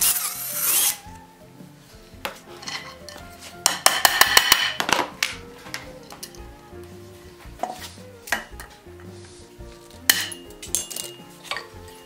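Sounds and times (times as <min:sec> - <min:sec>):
soft background music: 0:00.0 - 0:12.0
metal tools clinking: 0:02.6 - 0:03.2, 0:10.1 - 0:11.7.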